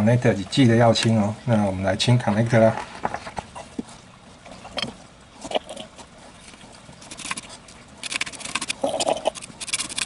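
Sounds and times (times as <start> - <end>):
brush scrubbing circuit board: 7.0 - 10.0.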